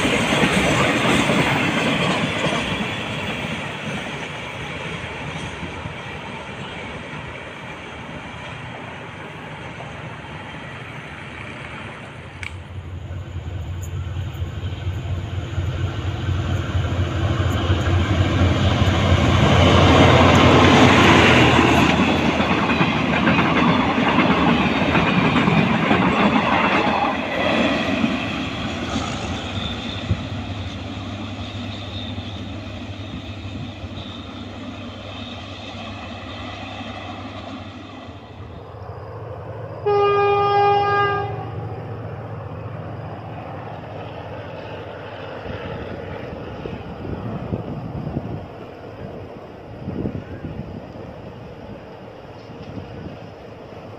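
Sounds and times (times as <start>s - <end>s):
freight train passing: 0.0s - 53.9s
train horn blast: 39.8s - 41.7s.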